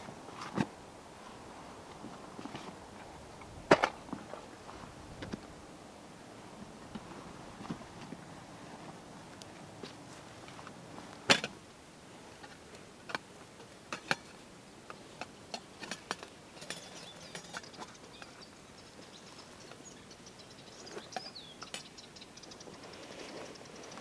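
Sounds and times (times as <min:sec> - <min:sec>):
bird chirping: 0:16.6 - 0:24.0.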